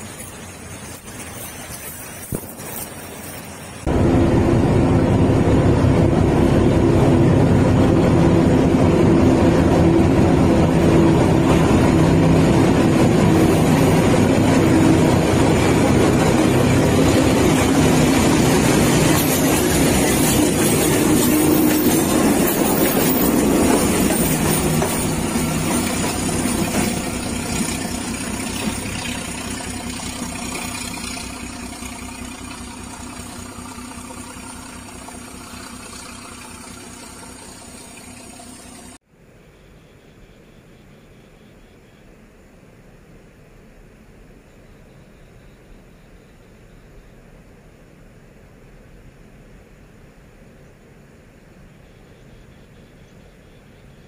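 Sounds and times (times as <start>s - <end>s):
diesel locomotive engine drone: 0.0s - 42.0s.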